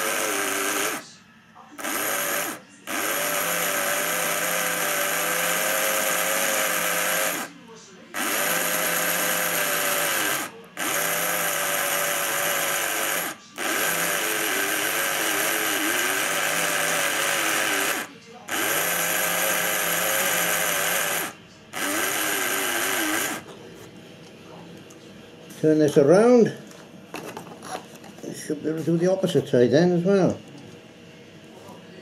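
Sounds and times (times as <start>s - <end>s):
small electric motor whirring: 0.0s - 1.2s, 1.8s - 7.6s, 8.2s - 23.5s.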